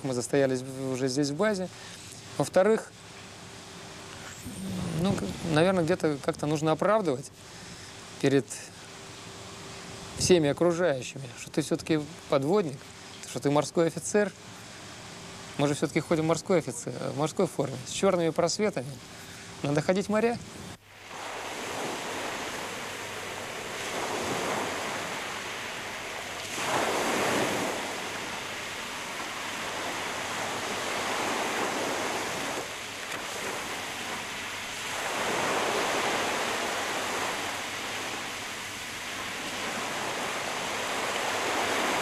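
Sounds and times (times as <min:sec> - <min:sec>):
sea waves washing in: 0:03.4 - 0:10.2, 0:19.3 - 0:42.0.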